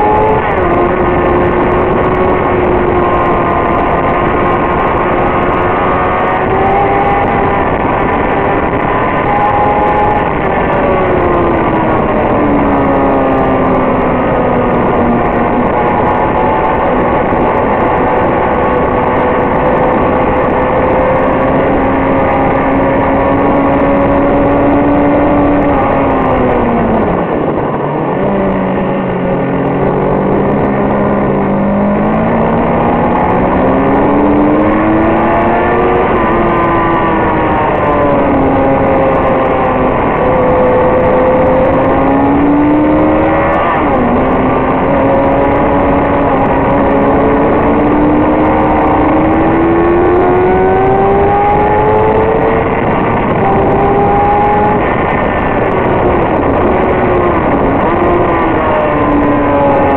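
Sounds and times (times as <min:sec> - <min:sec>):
heavy wind noise: 0:00.0 - 0:59.9
motorcycle engine revving: 0:00.0 - 0:59.9.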